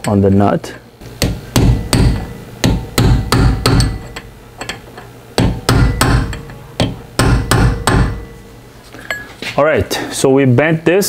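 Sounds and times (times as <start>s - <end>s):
hammer striking metal punch: 1.0s - 8.5s.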